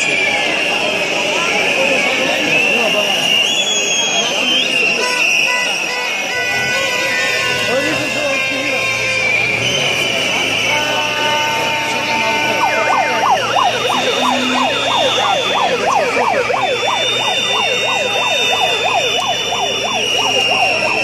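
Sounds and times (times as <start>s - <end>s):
marching crowd noise: 0.0s - 21.0s
siren yelping: 12.5s - 21.0s
shrill steady high tones: 12.6s - 21.0s.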